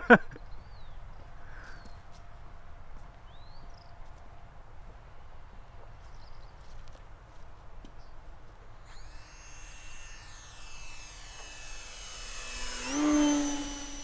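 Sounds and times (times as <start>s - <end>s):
model plane motor whine: 8.7s - 14.0s.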